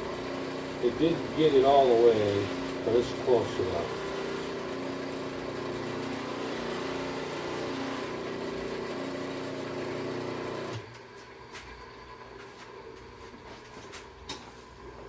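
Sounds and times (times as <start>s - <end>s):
electric buffer motor humming: 0.0s - 13.6s.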